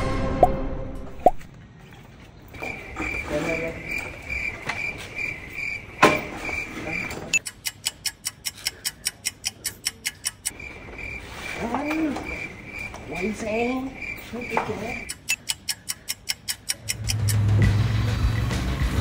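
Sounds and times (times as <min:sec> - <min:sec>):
cricket chirping: 0:02.5 - 0:17.3
rapid even clicks: 0:07.3 - 0:10.6, 0:15.0 - 0:17.5.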